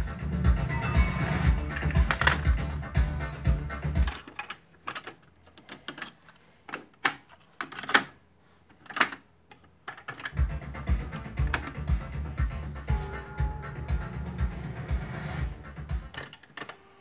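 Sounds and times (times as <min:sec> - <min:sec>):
cassette tape music playback: 0:00.0 - 0:04.3, 0:10.3 - 0:17.0.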